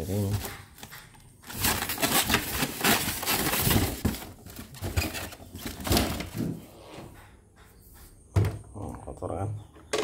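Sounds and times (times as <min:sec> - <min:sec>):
rustling and knocks of box: 0:00.1 - 0:06.6.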